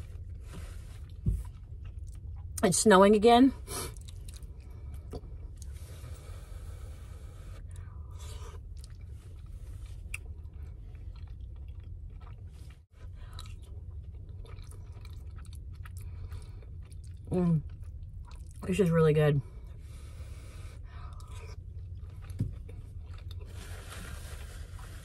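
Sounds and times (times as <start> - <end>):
steady low hum: 0.0 - 25.0
chewing and wet mouth clicks: 8.6 - 18.6.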